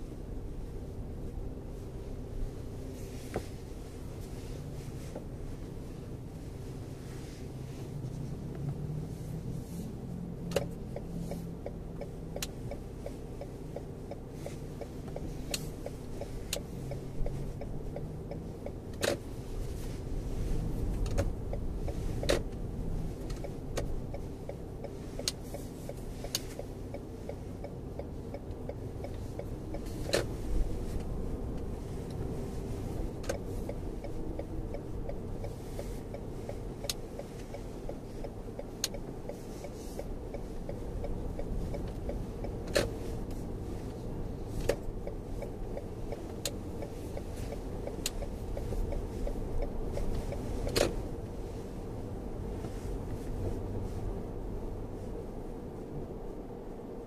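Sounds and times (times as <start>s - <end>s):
car road and drivetrain rumble: 0.0s - 57.0s
sharp clicks and knocks: 10.4s - 19.7s, 44.5s - 51.1s.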